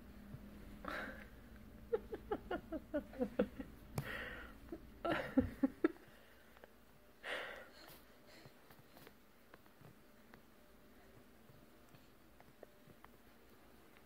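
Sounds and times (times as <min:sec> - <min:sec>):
breathy huffs: 0:04.0 - 0:04.7, 0:07.2 - 0:09.0.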